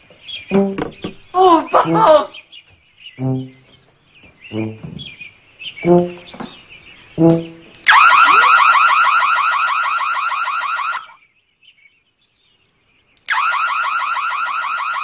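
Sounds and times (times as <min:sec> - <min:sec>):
warbling electronic alarm: 0:07.8 - 0:11.2, 0:13.3 - 0:15.0.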